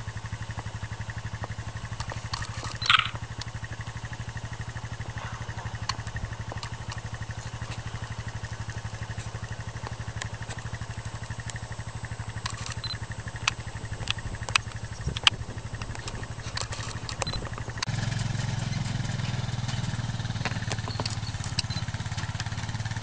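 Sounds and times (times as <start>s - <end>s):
engine idling: 0.0s - 23.0s
sharp clicks: 1.4s - 4.0s, 5.1s - 18.8s, 19.7s - 22.7s
camera beep: 2.6s - 3.2s, 12.5s - 13.1s, 17.2s - 17.4s, 20.8s - 21.9s.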